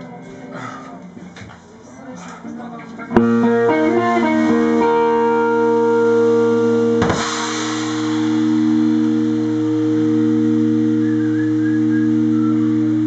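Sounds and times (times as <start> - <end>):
band holding electric guitar chord: 3.1 - 13.0
cymbal crash: 3.2 - 11.6.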